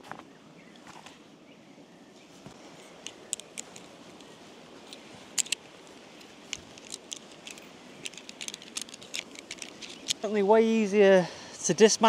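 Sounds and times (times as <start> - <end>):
faint outdoor background: 0.0 - 12.0
tent poles clicking together: 2.9 - 10.3.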